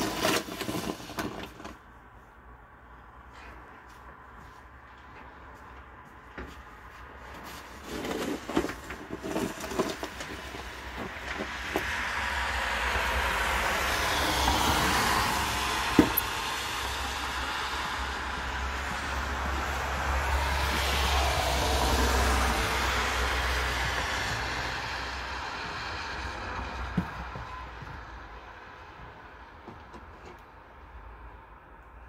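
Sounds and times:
snow shovel scraping pavement: 0.0s - 1.8s, 7.0s - 27.0s
rushing noise with low rumble: 8.4s - 29.6s.

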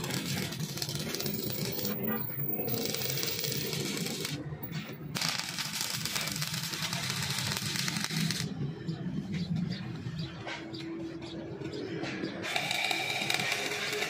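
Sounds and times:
welding arc crackling: 0.0s - 8.6s, 12.4s - 14.0s.

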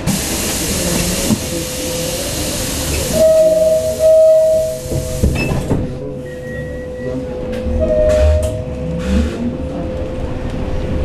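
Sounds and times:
loud electronic tone: 6.4s - 8.8s.

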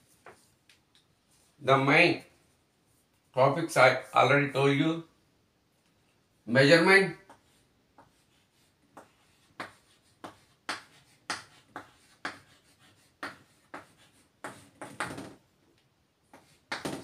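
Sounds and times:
chalk writing on chalkboard: 7.2s - 15.1s, 16.2s - 16.8s.

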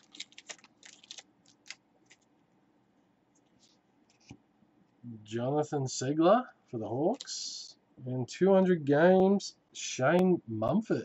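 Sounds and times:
cards rustling: 0.0s - 2.3s.

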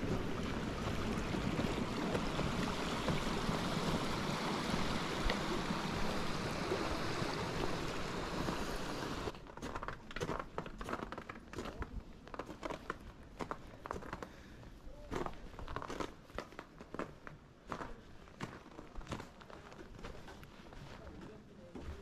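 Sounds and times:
creek rushing: 0.0s - 9.3s.

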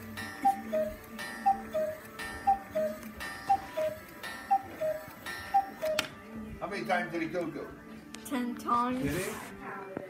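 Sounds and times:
two-note cuckoo clock call: 0.0s - 6.2s.

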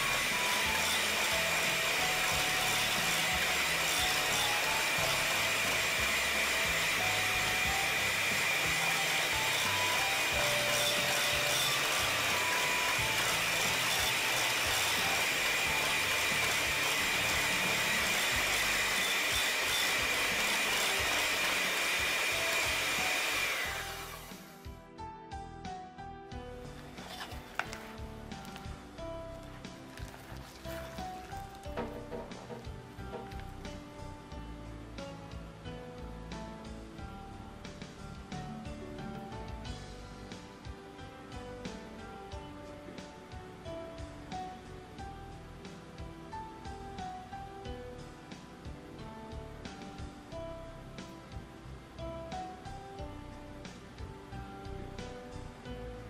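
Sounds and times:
electric hand mixer whining: 0.0s - 24.8s, 26.8s - 28.8s, 29.4s - 33.9s.

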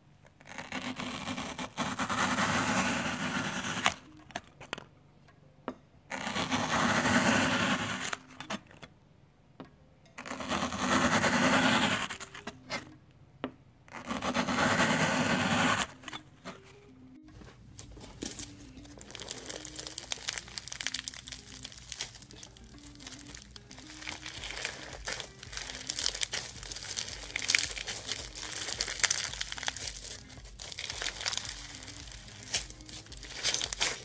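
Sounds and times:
knife slicing floral foam: 17.8s - 34.0s.

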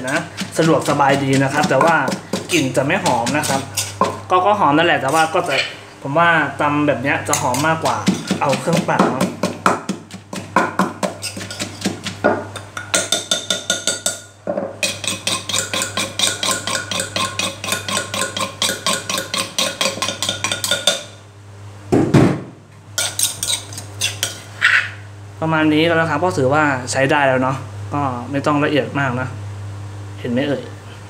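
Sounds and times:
pestle pounding in mortar: 0.0s - 4.3s, 7.3s - 21.1s.

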